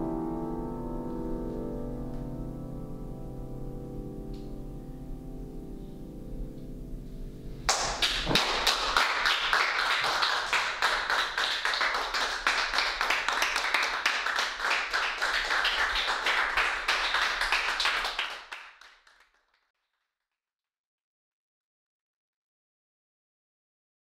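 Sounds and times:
small group applauding: 7.7 - 19.6.

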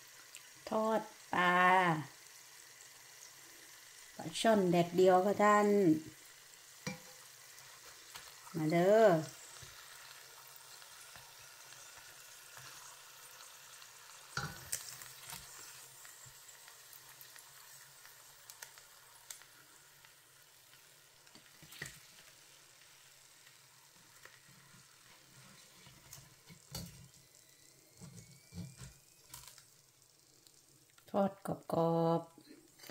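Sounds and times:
fish sizzling in oil: 0.0 - 32.9.

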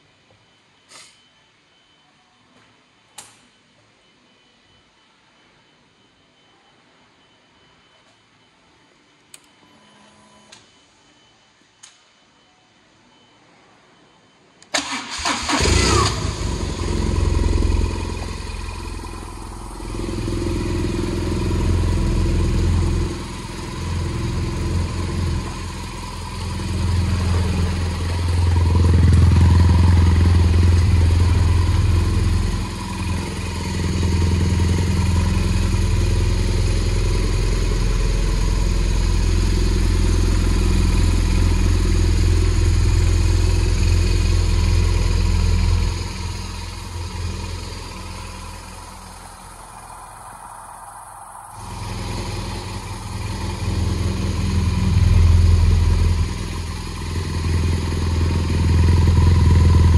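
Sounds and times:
motorcycle engine starting and running: 14.7 - 50.6, 51.6 - 59.9
starter whine: 14.7 - 59.9.

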